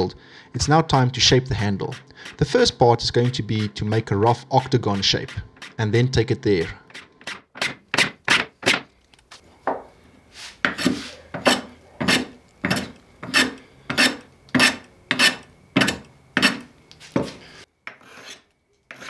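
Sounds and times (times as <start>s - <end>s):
hand plane strokes on wood: 10.3s - 19.0s.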